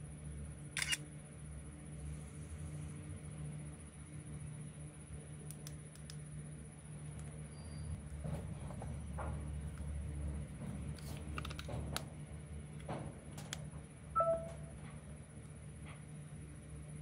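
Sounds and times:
steady low hum: 0.0 - 17.0
short electronic beep: 14.2 - 14.7.

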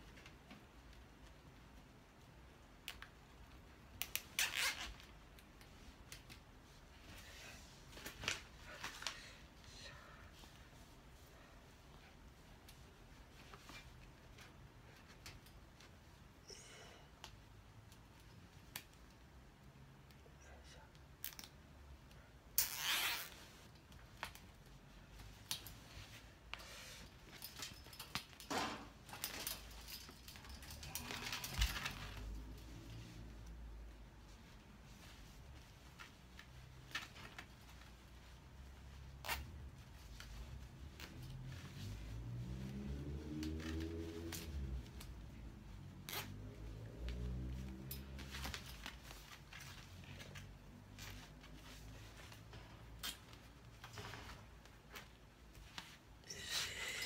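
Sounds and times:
rustling: 0.0 - 16.4, 21.4 - 57.0
cable tie zipping rasp: 4.0 - 5.1, 22.6 - 23.4, 46.0 - 46.4.

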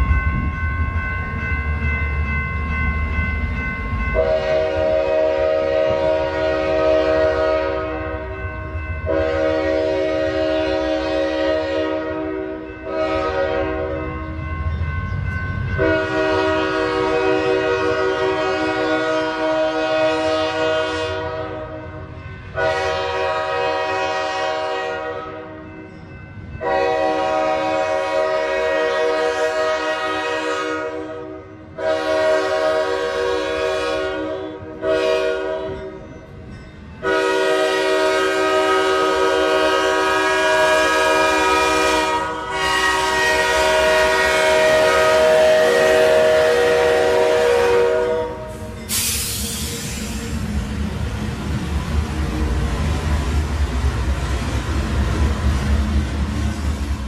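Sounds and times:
locomotive air horn blasts: 4.2 - 8.2, 9.1 - 14.0, 15.8 - 25.6, 26.6 - 35.9, 37.0 - 50.1.

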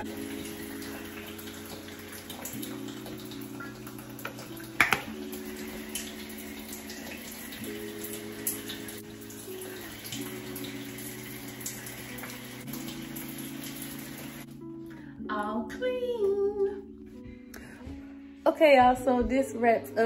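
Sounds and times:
shower water hissing: 0.0 - 14.5
soft music of sustained chords: 0.0 - 20.0.

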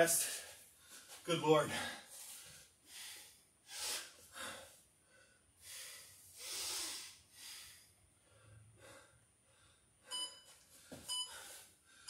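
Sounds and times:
man breathing hard: 1.7 - 10.1, 10.9 - 12.0.

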